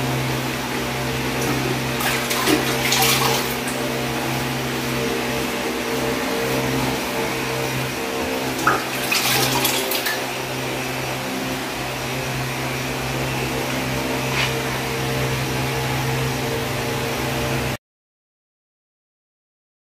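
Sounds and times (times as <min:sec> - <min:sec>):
sponge wiping tiles: 0:14.2 - 0:14.7.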